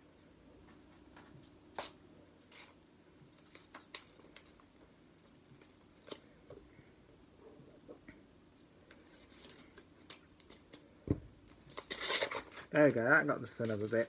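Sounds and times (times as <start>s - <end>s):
packaging rustling: 11.4s - 12.7s.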